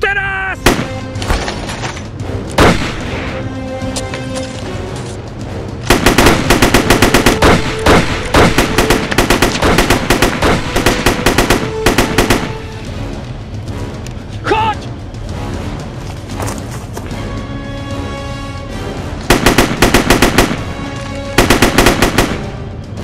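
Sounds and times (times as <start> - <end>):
background music: 0.0 - 23.0
rapid gunfire: 0.6 - 1.1, 2.6 - 3.1, 5.9 - 12.8, 19.3 - 22.7
gunshot: 0.6 - 1.6, 2.6 - 3.2, 5.9 - 12.6.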